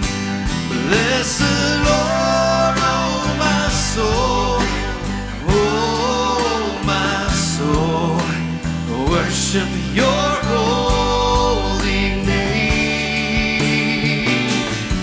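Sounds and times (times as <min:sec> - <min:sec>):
drums: 0:00.0 - 0:15.0
strummed acoustic guitar: 0:00.0 - 0:15.0
sustained low notes: 0:00.0 - 0:15.0
person singing: 0:00.7 - 0:15.0.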